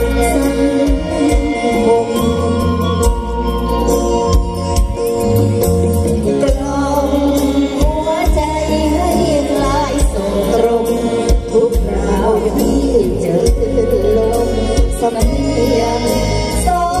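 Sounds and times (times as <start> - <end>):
live band with singing: 0.0 - 17.0.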